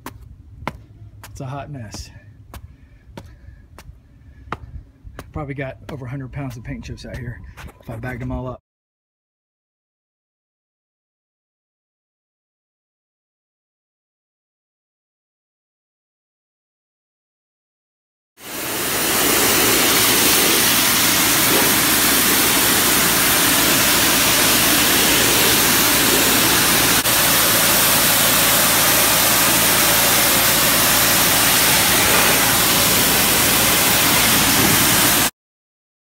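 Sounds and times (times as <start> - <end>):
pressure washer spraying concrete: 18.4 - 35.3.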